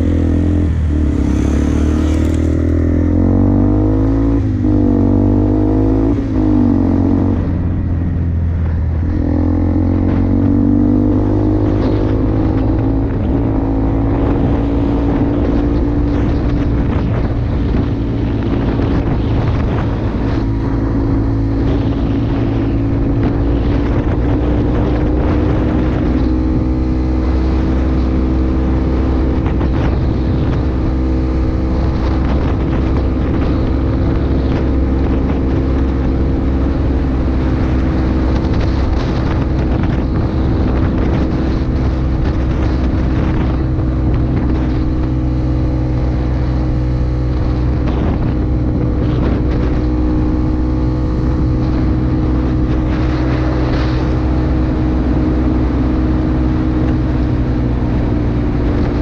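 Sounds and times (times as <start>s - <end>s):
quad bike engine revving: 0.0s - 7.4s.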